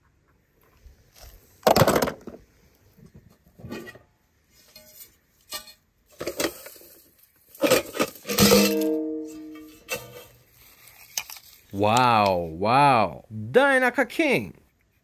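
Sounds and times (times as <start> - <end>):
toy car hitting a pot: 1.6 - 2.4, 7.6 - 9.5.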